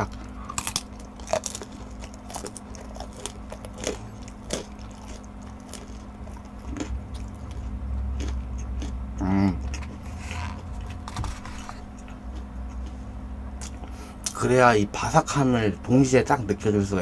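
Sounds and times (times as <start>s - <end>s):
close chewing: 0.0s - 13.0s.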